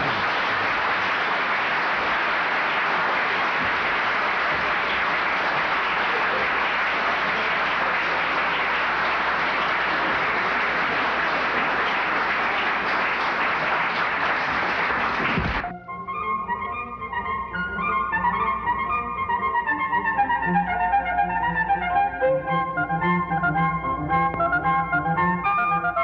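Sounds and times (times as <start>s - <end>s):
audience applauding: 0.0s - 15.7s.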